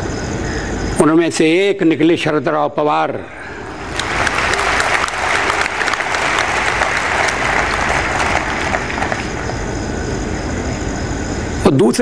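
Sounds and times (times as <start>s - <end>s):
crowd applauding: 3.5s - 10.5s.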